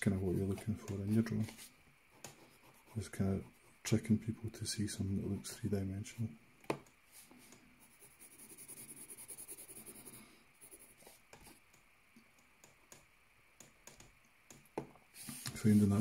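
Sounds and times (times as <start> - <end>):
pencil scratching on paper: 7.8 - 11.6.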